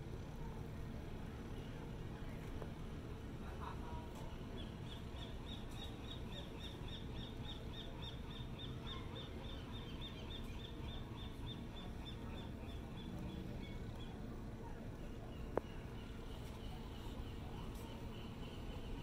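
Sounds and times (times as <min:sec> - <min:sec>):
low background rush: 0:00.0 - 0:19.0.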